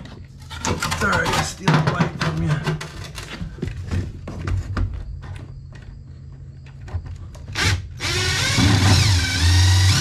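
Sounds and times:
cordless drill motor whirring: 7.5s - 10.0s.

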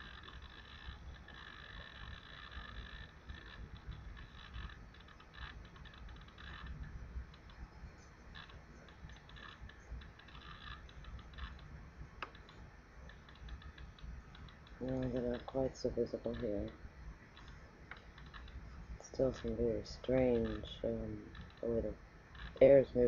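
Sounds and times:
computer keyboard typing: 8.3s - 21.8s.

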